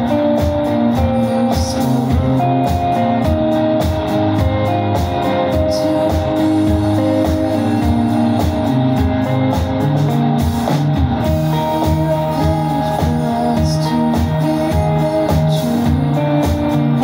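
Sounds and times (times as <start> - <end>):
bass guitar: 0.0 - 17.0
electric guitars: 0.0 - 17.0
steady drum beat: 0.0 - 17.0.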